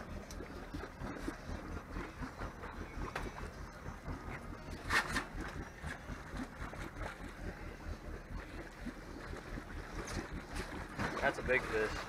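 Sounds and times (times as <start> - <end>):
boat engine rumble: 0.0 - 12.0
water along hull: 0.0 - 12.0.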